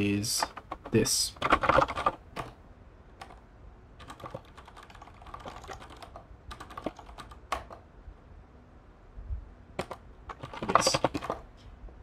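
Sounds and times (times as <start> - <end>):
typing on computer keyboard: 0.4 - 2.6, 3.2 - 3.4, 4.0 - 7.8, 9.8 - 11.5.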